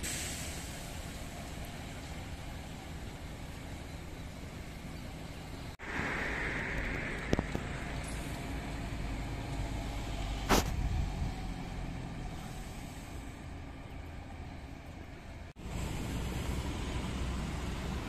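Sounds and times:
bus passing and pulling away: 0.0 - 18.0
road traffic rumble: 0.0 - 18.0
sharp burst of noise: 5.8 - 9.1.

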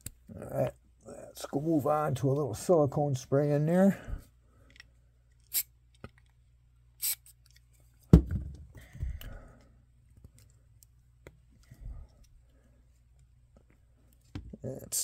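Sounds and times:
aerosol spray can hissing: 7.0 - 7.3.

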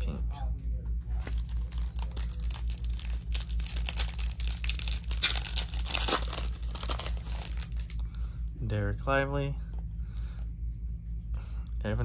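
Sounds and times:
foil wrapper tearing and crinkling: 1.4 - 8.0.

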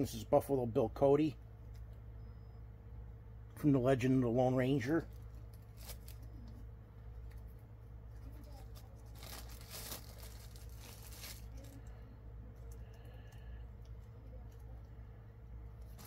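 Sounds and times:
plastic bag crinkling and tearing: 5.1 - 6.5, 8.3 - 11.9.

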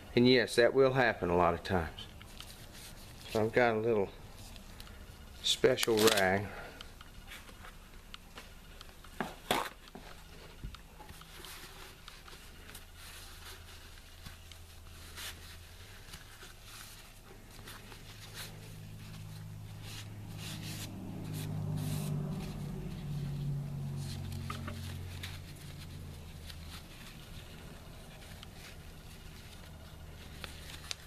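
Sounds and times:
low steady hum: 0.0 - 31.0
paper towel rustling: 2.3 - 31.0.

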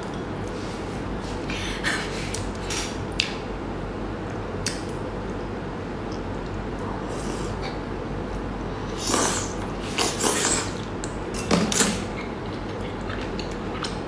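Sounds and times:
wet slurping and sucking: 8.9 - 10.9.

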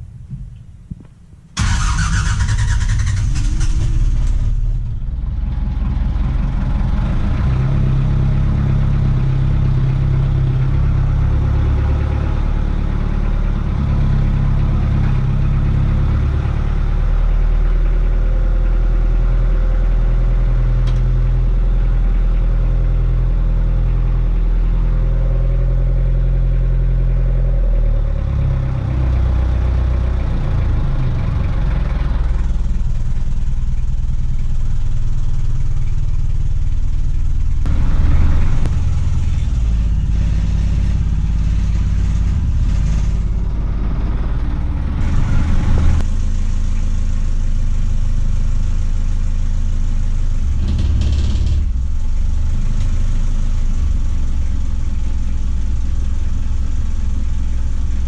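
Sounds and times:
boat engine running: 27.6 - 58.0.

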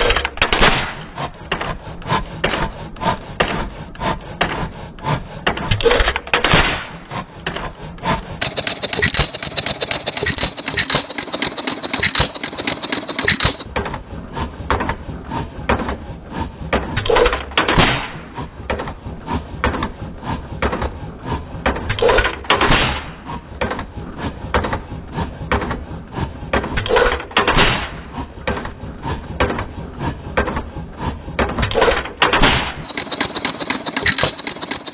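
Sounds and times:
stationary engine clattering: 8.3 - 13.8, 32.8 - 34.9.

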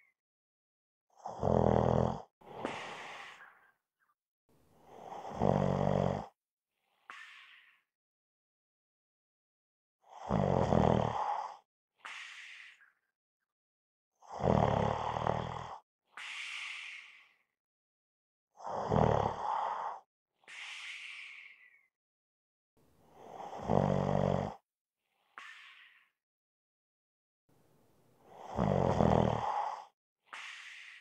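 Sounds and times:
person snoring: 1.2 - 3.6, 4.8 - 6.4, 10.1 - 12.8, 14.2 - 17.4, 18.6 - 21.7, 23.1 - 24.6, 28.2 - 31.0
airy breath: 2.4 - 3.8, 16.2 - 17.5, 19.6 - 21.9, 29.5 - 31.0.

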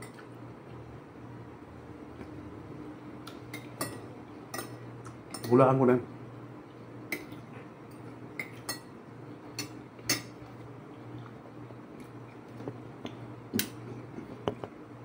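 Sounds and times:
steady low hum: 0.0 - 15.0
cutlery clinking against plates: 3.5 - 5.6, 9.6 - 10.4.

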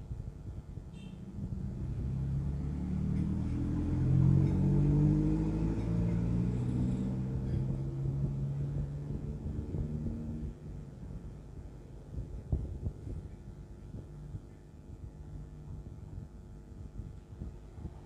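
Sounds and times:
vehicle engine passing by: 1.4 - 10.8.

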